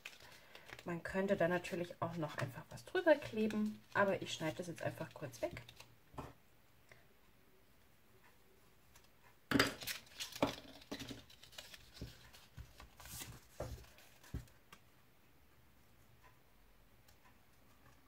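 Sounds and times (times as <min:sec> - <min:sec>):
paper rustling and tapping: 0:09.0 - 0:14.9.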